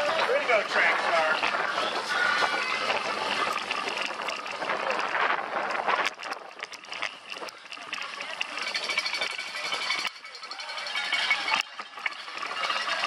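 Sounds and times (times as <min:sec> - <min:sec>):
rushing wind noise: 0:00.0 - 0:10.1
bike rattling and knocking: 0:00.0 - 0:13.0.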